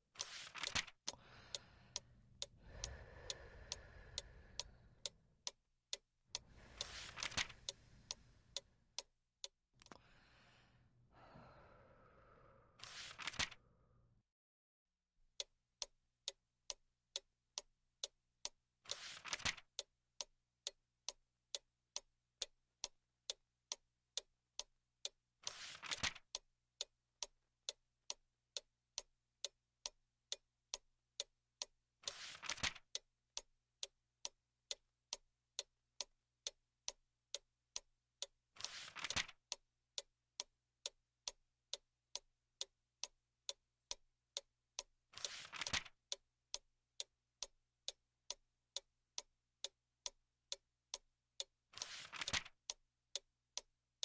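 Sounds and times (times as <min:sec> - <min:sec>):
book page turning: 0:00.2 - 0:00.9, 0:06.7 - 0:07.8, 0:12.8 - 0:13.6, 0:19.0 - 0:19.6, 0:25.5 - 0:26.2, 0:32.1 - 0:32.8, 0:38.6 - 0:39.3, 0:45.2 - 0:45.9, 0:51.8 - 0:52.5
clock ticking: 0:00.2 - 0:10.0, 0:15.3 - 0:53.7.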